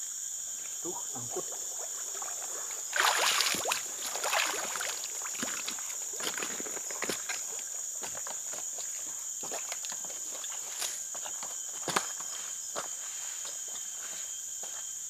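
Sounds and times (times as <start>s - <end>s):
insects droning: 0.0s - 15.0s
footsteps on a log: 3.1s - 14.2s.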